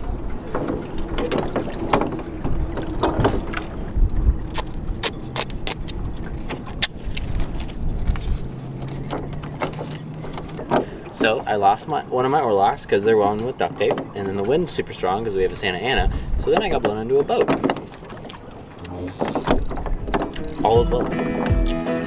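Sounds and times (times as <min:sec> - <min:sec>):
wind rumbling on microphone: 0:00.0 - 0:11.2, 0:12.7 - 0:21.6
oars knocking and creaking: 0:00.0 - 0:21.9
duct tape pulled off roll: 0:04.4 - 0:05.9.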